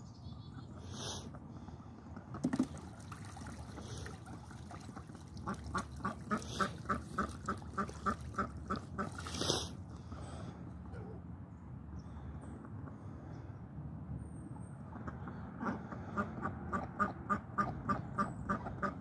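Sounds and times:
duck quacking: 0:05.4 - 0:09.3, 0:15.6 - 0:19.0.

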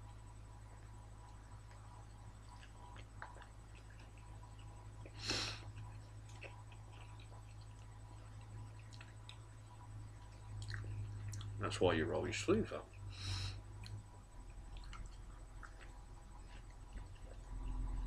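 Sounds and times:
steady low hum: 0:00.0 - 0:18.0
chewing clicks: 0:00.8 - 0:11.6, 0:13.8 - 0:18.0
short breathy puff: 0:05.2 - 0:05.6, 0:13.1 - 0:13.6.

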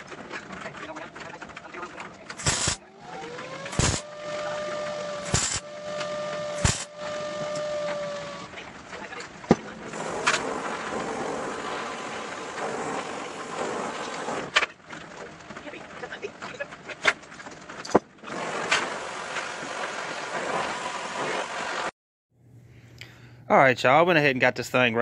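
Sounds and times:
welding arc crackling: 0:01.5 - 0:14.5
welder whine: 0:02.3 - 0:14.5.

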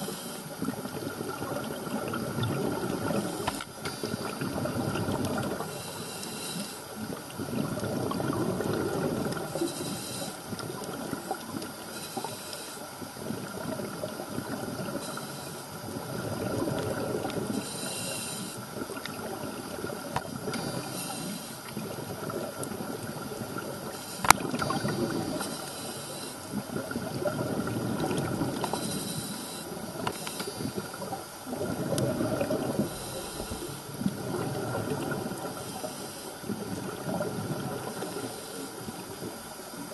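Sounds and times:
regulator hissing inhalations: 0:00.0 - 0:00.6, 0:03.0 - 0:04.4, 0:05.6 - 0:06.9, 0:09.4 - 0:10.5, 0:11.8 - 0:13.0, 0:14.9 - 0:15.8, 0:17.5 - 0:18.7, 0:20.4 - 0:21.7, 0:23.8 - 0:26.6, 0:28.6 - 0:31.1, 0:32.7 - 0:34.0, 0:35.4 - 0:36.5, 0:37.9 - 0:39.2
bubbling exhalations: 0:22.1 - 0:25.4, 0:29.9 - 0:35.6.

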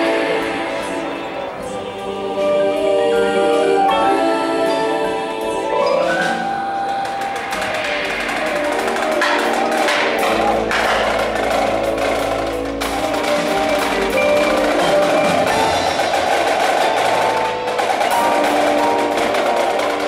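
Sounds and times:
drums: 0:00.0 - 0:20.0
marimbas and vibraphones: 0:00.0 - 0:20.0.

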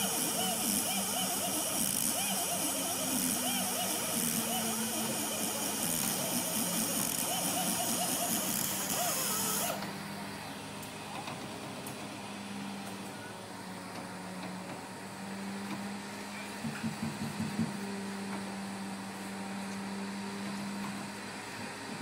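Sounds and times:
short pulses: 0:00.0 - 0:09.9
engine and hydraulic drone: 0:00.0 - 0:22.0.

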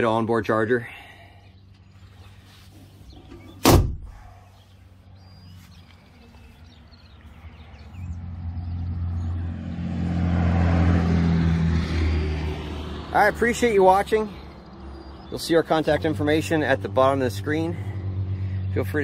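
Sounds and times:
vehicle engine humming: 0:00.7 - 0:19.0
metal door banging shut: 0:03.6 - 0:04.1.

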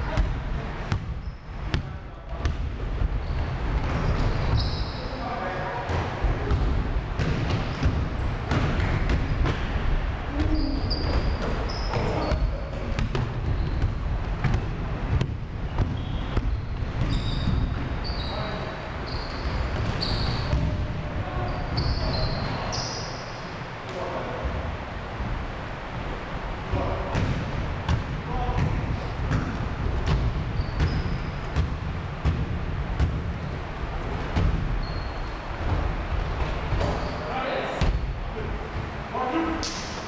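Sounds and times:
basketball bouncing: 0:00.0 - 0:04.6, 0:05.9 - 0:18.2, 0:19.4 - 0:21.0, 0:27.1 - 0:33.6, 0:34.2 - 0:37.1
sneakers squeaking on wood floor: 0:00.1 - 0:09.7, 0:10.3 - 0:23.6, 0:28.4 - 0:32.3, 0:34.2 - 0:38.0
players' voices: 0:03.7 - 0:13.9.

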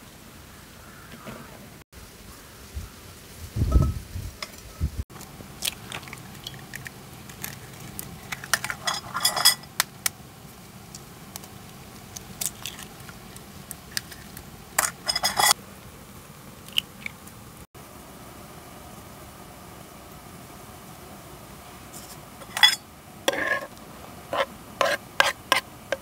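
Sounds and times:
low steady hiss: 0:00.0 - 0:26.0
eggshells cracking: 0:05.5 - 0:08.8, 0:10.9 - 0:15.0, 0:16.6 - 0:17.2.

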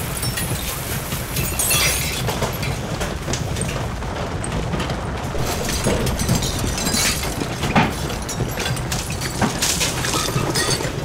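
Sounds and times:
kitchen things rattling: 0:00.0 - 0:11.0
deep earthquake rumble: 0:02.2 - 0:11.0
loud crash: 0:05.3 - 0:11.0.

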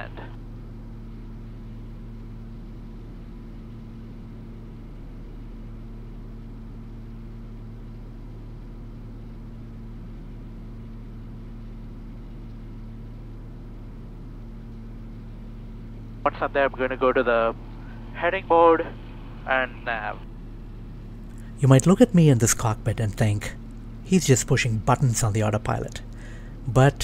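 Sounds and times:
twin propeller engines droning: 0:13.2 - 0:27.0.

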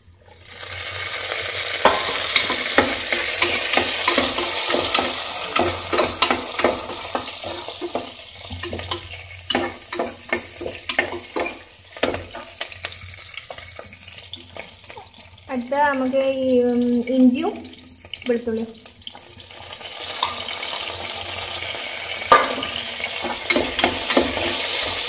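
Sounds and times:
chillies sizzling in hot oil: 0:00.0 - 0:25.0
spoon scraping against pot: 0:01.8 - 0:15.1, 0:22.3 - 0:25.0.

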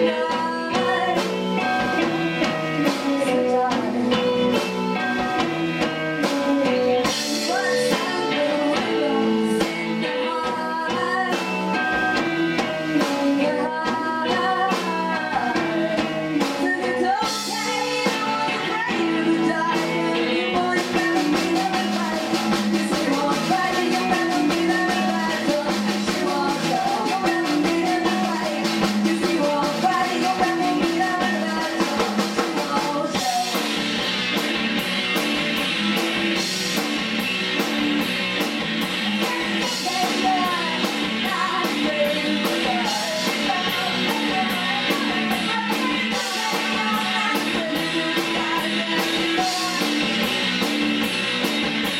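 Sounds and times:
woman singing: 0:00.0 - 0:34.2, 0:39.0 - 0:50.8
bass guitar: 0:00.0 - 0:51.9
drum kit: 0:00.0 - 0:51.9
electric guitars: 0:00.0 - 0:51.9.

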